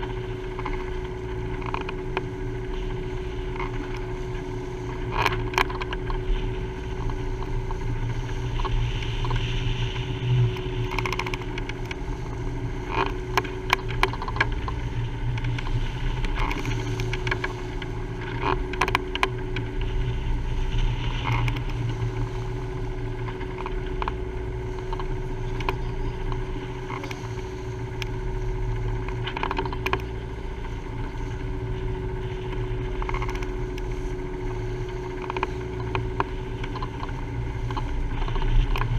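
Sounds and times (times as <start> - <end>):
steady hum: 0.0 - 38.9
water rushing along hull: 0.0 - 38.9
waves splashing against bow: 0.0 - 38.9.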